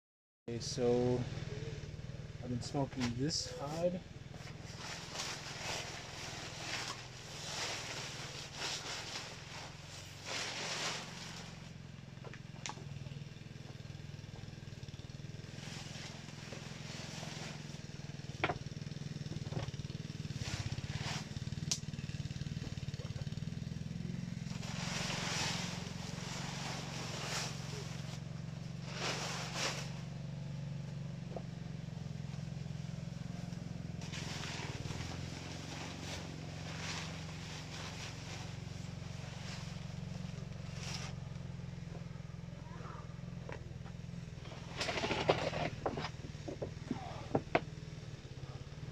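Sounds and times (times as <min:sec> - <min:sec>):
steady low hum: 0:00.5 - 0:48.9
plastic sheeting rustling: 0:04.4 - 0:11.8, 0:15.6 - 0:18.0, 0:20.3 - 0:21.6, 0:24.3 - 0:30.2, 0:33.4 - 0:41.7.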